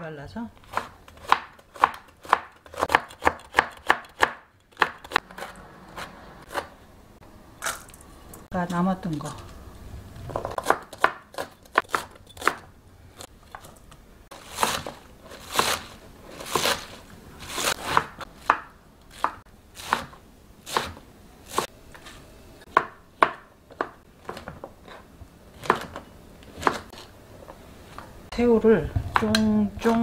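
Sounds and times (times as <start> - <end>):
knife chopping on plastic board: 0.7 - 5.3, 10.4 - 12.6, 14.5 - 15.8, 17.6 - 21.7, 22.7 - 24.6, 25.6 - 27.0.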